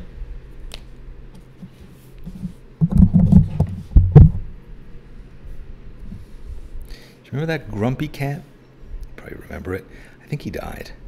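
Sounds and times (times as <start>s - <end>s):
paper handling thumps and knocks: 2.8s - 4.4s.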